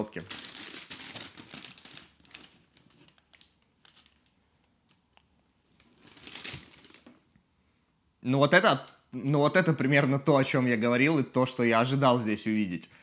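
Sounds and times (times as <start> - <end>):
tissue paper rustling: 0.0 - 4.6, 5.8 - 7.1.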